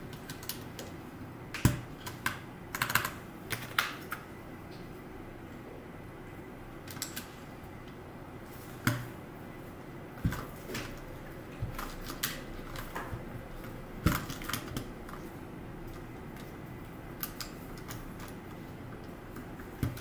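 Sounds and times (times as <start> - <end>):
mechanical keyboard keys clacking: 1.6 - 4.2.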